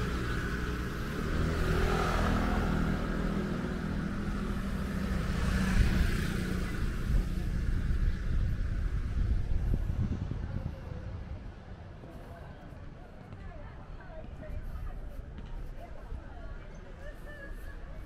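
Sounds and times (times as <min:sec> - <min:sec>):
vehicle passing by: 0:00.0 - 0:10.3.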